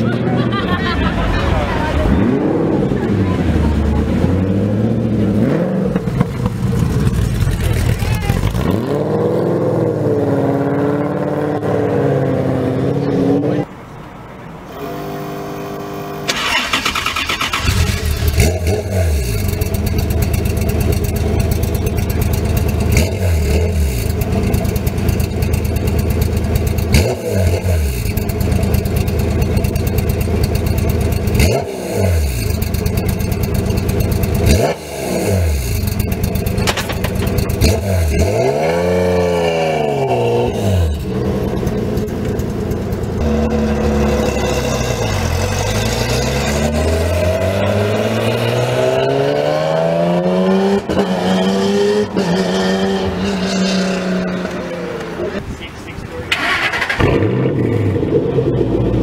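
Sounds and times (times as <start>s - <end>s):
car engine accelerating: 0.0s - 13.8s, 14.7s - 59.0s
race car engine rough idle revving: 5.9s - 8.8s, 16.3s - 39.2s, 39.8s - 46.9s, 55.4s - 59.0s.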